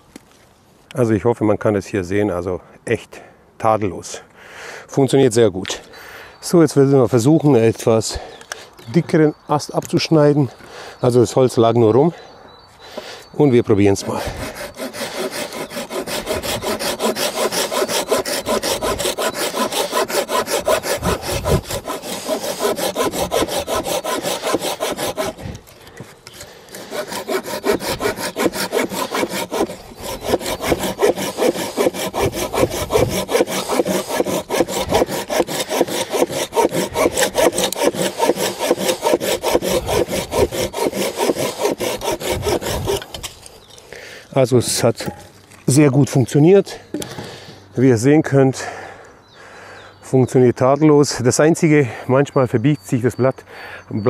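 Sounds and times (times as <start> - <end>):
pull saw cutting branch: 13.9 - 43.7.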